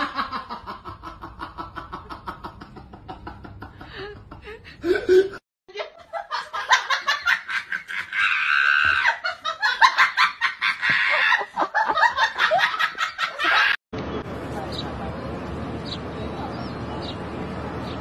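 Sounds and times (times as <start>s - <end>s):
person laughing hard: 0.0s - 13.8s.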